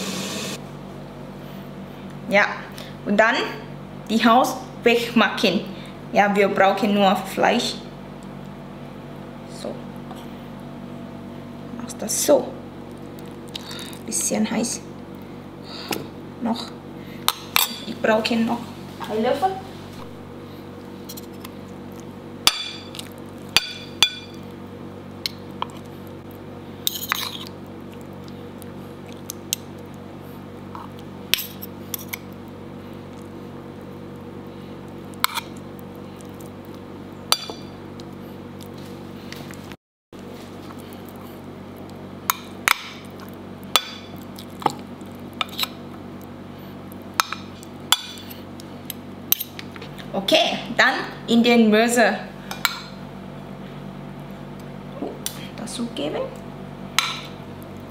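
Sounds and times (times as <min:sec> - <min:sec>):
low background hum: 0:00.0 - 0:57.9.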